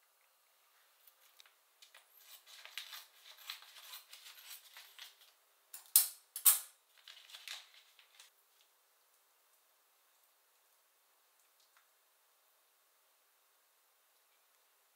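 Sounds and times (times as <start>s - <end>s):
plastic crinkling: 6.9s - 8.3s.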